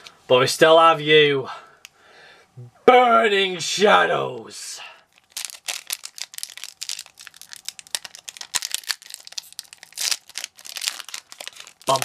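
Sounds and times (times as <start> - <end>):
foil wrapper crinkling and tearing: 5.1 - 12.0.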